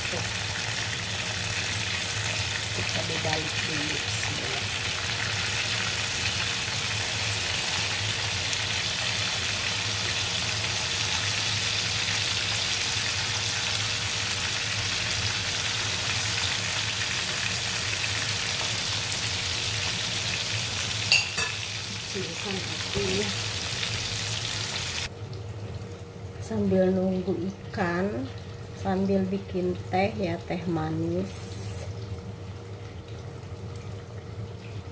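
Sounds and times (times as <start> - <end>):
fish sizzling in hot oil: 0.0 - 25.1.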